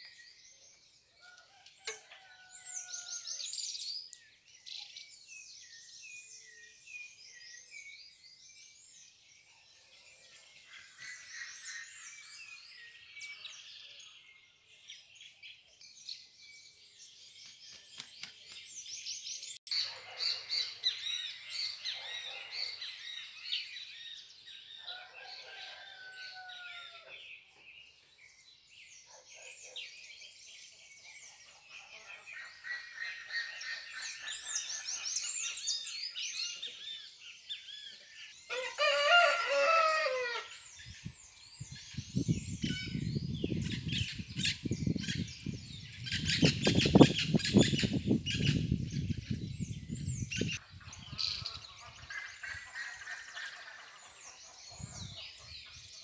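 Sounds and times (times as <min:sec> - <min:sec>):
small birds chirping: 0:40.6 - 0:56.0.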